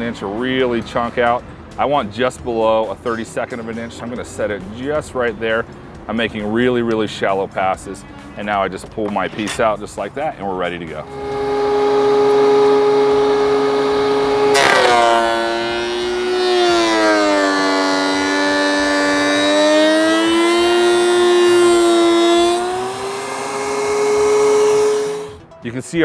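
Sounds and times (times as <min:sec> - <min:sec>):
planer cutting wood rasp: 0:11.0 - 0:25.4
thickness planer whining: 0:11.0 - 0:25.5.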